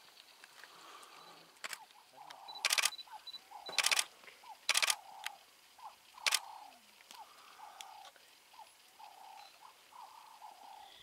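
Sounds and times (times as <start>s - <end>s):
camera shutter bursts: 2.6s - 3.0s, 3.7s - 4.1s, 4.7s - 5.0s, 6.2s - 6.4s.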